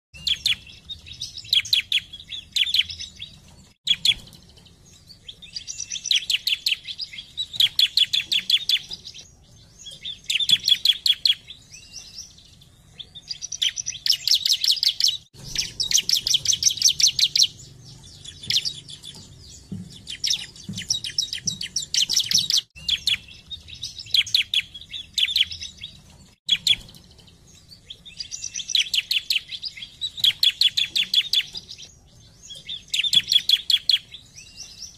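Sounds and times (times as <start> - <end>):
bird singing rapid high notes: 13.3 - 34.9.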